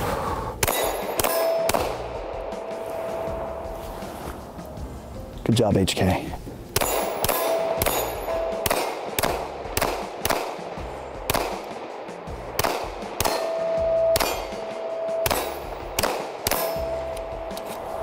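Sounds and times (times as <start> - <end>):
pistol shots: 0.6 - 3.3, 6.8 - 17.7.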